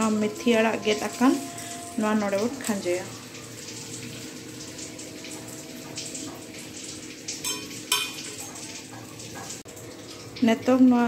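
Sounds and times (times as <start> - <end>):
gravy simmering: 0.0 - 11.0.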